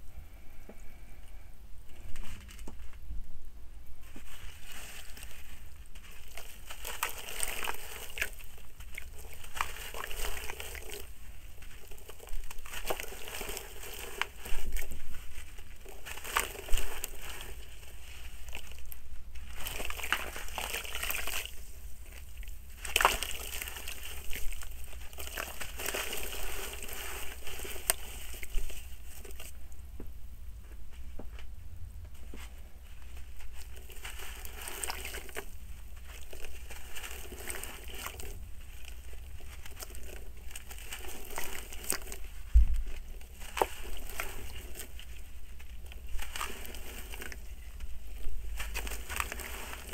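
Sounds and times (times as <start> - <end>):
soil crumbling and crunching: 4.0 - 30.1, 32.2 - 49.9
water splashing and sloshing: 4.1 - 29.6, 33.5 - 49.9.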